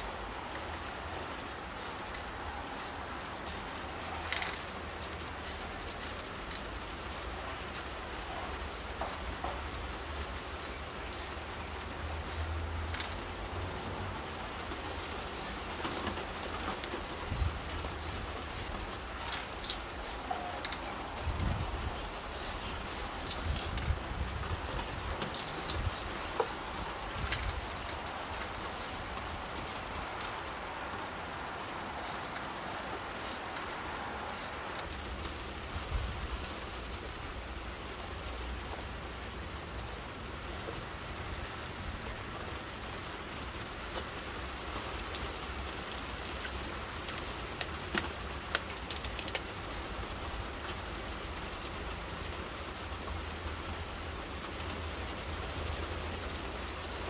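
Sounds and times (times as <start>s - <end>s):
steady rain falling: 0.0s - 57.0s
aerosol spray paint hissing: 1.8s - 4.7s, 5.3s - 6.6s, 9.5s - 11.5s, 12.2s - 13.2s, 15.3s - 16.1s, 16.7s - 24.1s, 24.7s - 30.8s, 31.9s - 34.9s.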